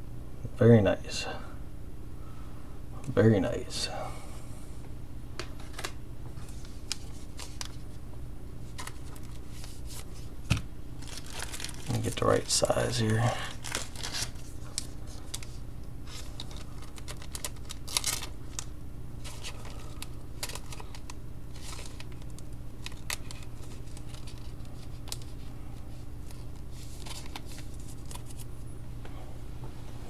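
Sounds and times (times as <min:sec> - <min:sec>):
low electrical hum: 0:00.0 - 0:30.0
cards clicking and rustling: 0:05.4 - 0:08.0, 0:08.6 - 0:25.5, 0:26.2 - 0:28.5.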